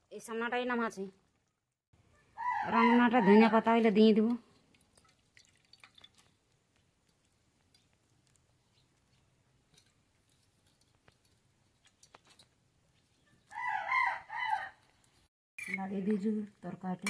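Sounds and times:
rooster crowing: 2.3s - 3.6s, 13.5s - 14.8s.

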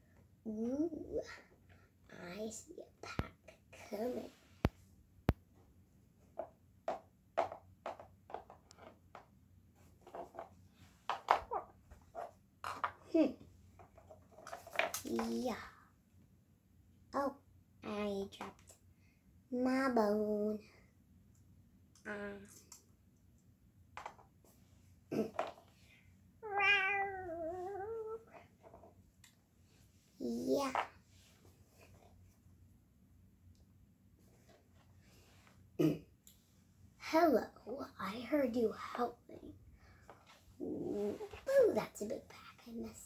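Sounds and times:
plastic toys tapping on wooden floor: 6.4s - 9.3s, 11.1s - 11.6s
person imitating cat meow: 26.4s - 28.3s.

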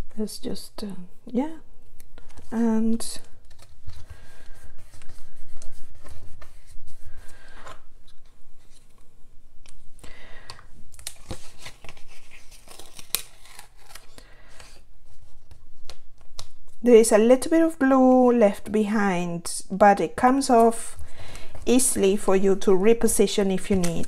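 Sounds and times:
paper rustling and crackling: 2.2s - 9.1s, 10.9s - 16.5s, 20.6s - 24.0s
tape strip peeling off card: 11.0s - 14.2s.

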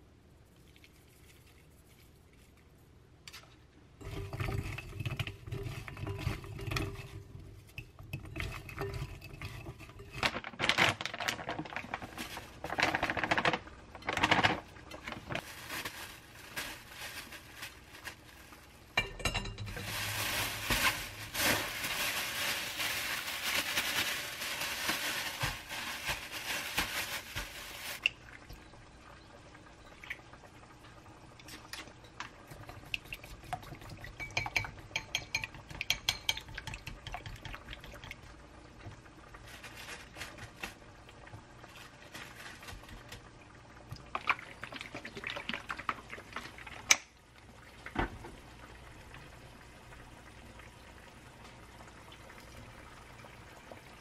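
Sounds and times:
plastic bag crinkling: 8.7s - 18.8s, 19.7s - 28.1s, 39.3s - 40.9s, 41.6s - 43.3s.

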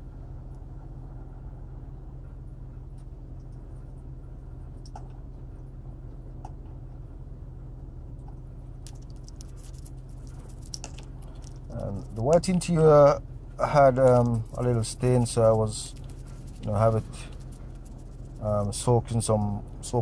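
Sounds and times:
steady low hum: 0.0s - 20.0s
toothbrush scrubbing plastic: 8.8s - 12.7s, 13.9s - 19.4s.

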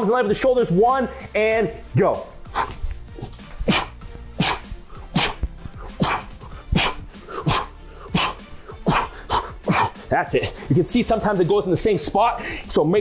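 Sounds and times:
man grunting: 5.2s - 10.0s.

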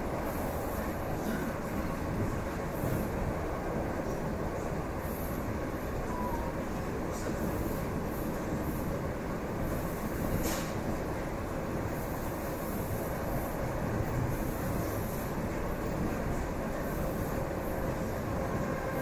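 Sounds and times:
brief hiss: 10.4s - 10.8s.

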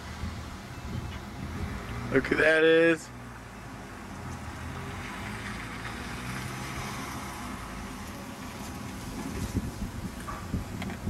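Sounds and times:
car engine hum: 0.0s - 11.0s
road and tyre noise: 0.0s - 11.0s.

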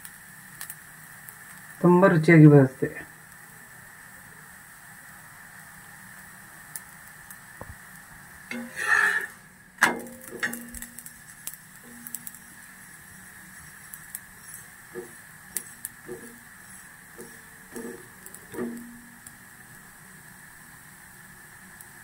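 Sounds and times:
faint steady hiss: 0.0s - 22.0s
spatula scraping: 8.5s - 11.0s, 11.8s - 19.0s
spatula clanking on iron griddle: 8.5s - 12.6s, 14.4s - 19.2s
spatula tapping flatbread: 9.8s - 11.1s, 14.9s - 19.1s.

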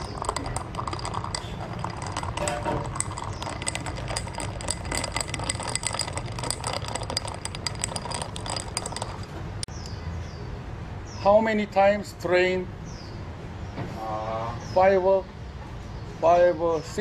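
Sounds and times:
spoon clinking against glass and ice: 0.0s - 9.4s.

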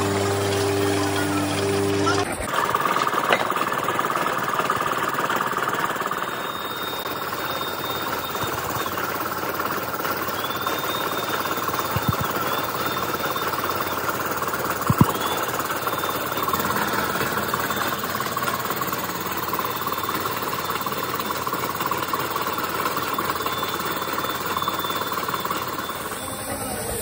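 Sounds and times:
workshop machinery running: 0.0s - 27.0s
faint high whine: 6.1s - 27.0s.

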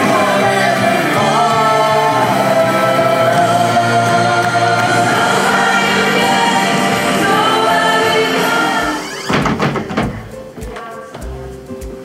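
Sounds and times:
woman singing lead: 0.0s - 9.3s, 10.5s - 11.4s
many voices singing along: 0.0s - 9.5s
band playing: 0.0s - 10.6s.

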